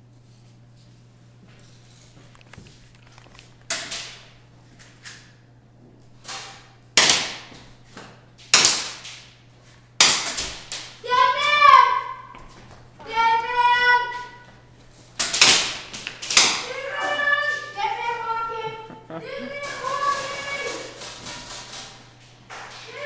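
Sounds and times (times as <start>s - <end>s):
person shouting: 16.8s - 20.8s.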